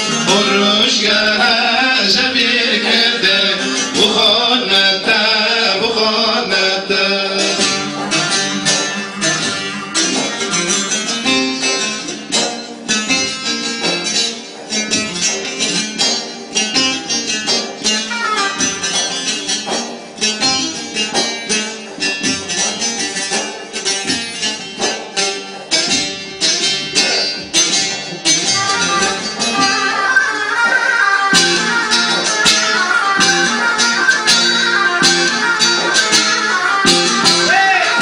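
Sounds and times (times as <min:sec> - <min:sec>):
electronic keyboard accompaniment: 0:00.0 - 0:38.0
plucked long-necked lute: 0:00.0 - 0:38.0.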